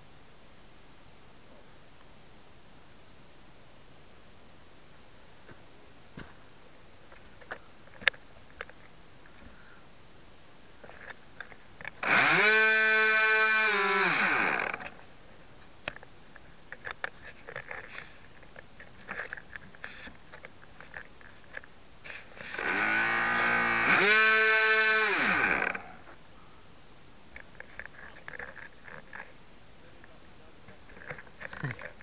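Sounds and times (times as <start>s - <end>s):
electric model plane motor whining: 12.0s - 15.0s, 22.3s - 26.1s.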